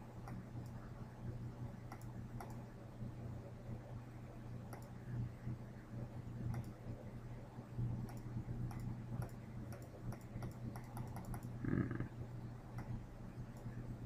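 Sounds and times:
steady low hum: 0.0 - 14.0
computer mouse clicking: 0.2 - 0.8, 1.9 - 2.7, 4.7 - 5.0, 6.5 - 6.8, 8.0 - 11.6, 12.7 - 13.8.

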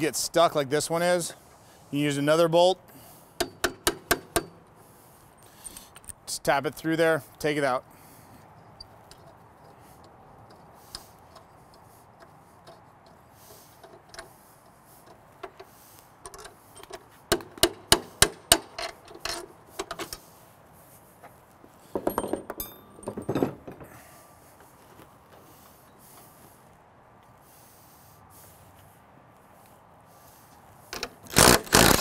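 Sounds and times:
hammer striking metal bolt: 3.4 - 4.6, 16.3 - 20.0
metallic rattling and scraping: 8.7 - 20.3, 21.8 - 26.4.

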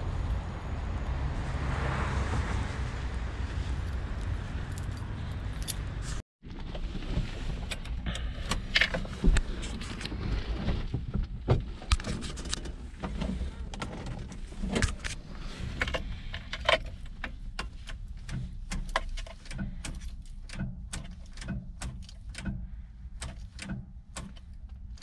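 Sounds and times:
ignition key clicks: 16.4 - 22.6, 23.2 - 25.0.

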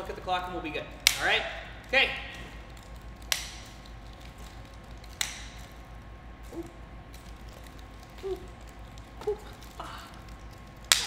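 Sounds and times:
nunchaku swishing: 6.4 - 11.0
faint squeaks: 6.5 - 6.8, 8.0 - 10.4.

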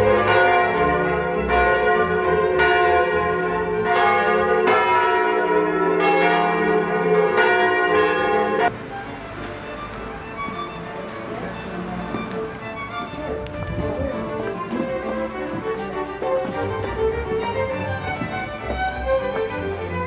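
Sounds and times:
church bells ringing: 0.0 - 8.8.

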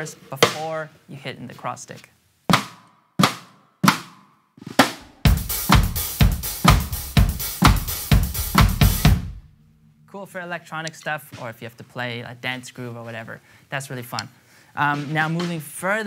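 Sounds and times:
bass drum: 4.8 - 9.5
snare drum cross stick clap: 6.6 - 7.0, 7.6 - 9.1, 14.9 - 15.7.

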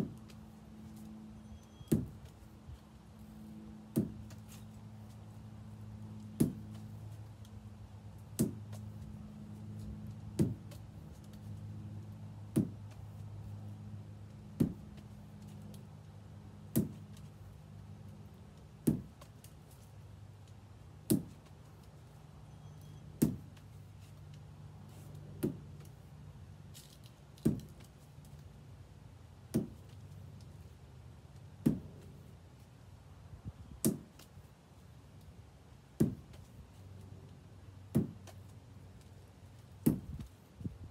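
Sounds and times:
low steady hum: 0.0 - 40.9
ball smacking against wall: 1.9 - 2.3, 3.9 - 4.5, 6.4 - 6.8, 8.3 - 8.9, 10.3 - 10.8, 12.5 - 13.0, 14.6 - 15.1, 16.7 - 17.3, 18.8 - 19.5, 21.0 - 21.5, 23.2 - 23.6, 25.3 - 25.9, 26.8 - 27.9, 29.5 - 30.0, 31.6 - 32.1, 33.8 - 34.3, 36.0 - 36.5, 37.9 - 38.4, 39.8 - 40.3.

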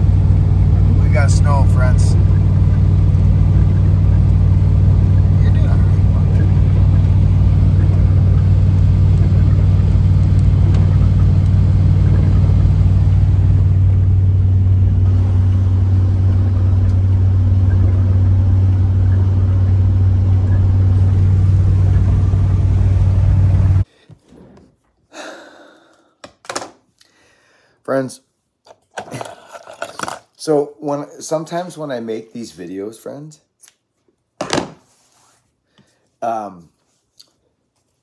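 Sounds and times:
vehicle interior driving rumble: 0.0 - 23.8.

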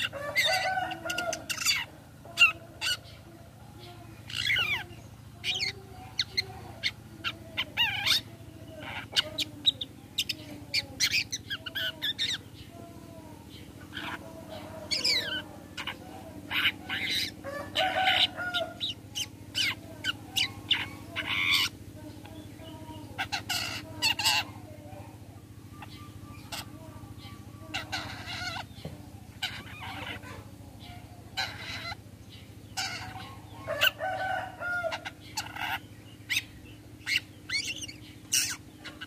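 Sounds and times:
harsh rasping bird calls: 0.0 - 39.0.

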